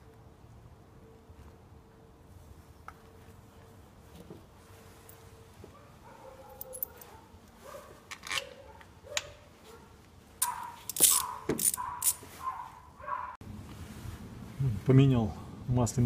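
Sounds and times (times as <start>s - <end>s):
metal bolts clinking: 6.5s - 7.1s, 10.4s - 12.2s
socket wrench turning bolts: 10.4s - 12.2s.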